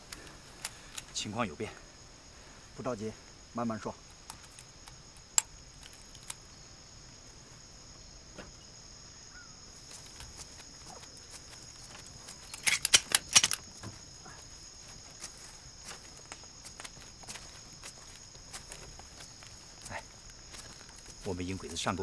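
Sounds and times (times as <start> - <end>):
sharp clicks: 4.1 - 6.4, 12.0 - 13.6
rustles of movement: 9.6 - 22.0.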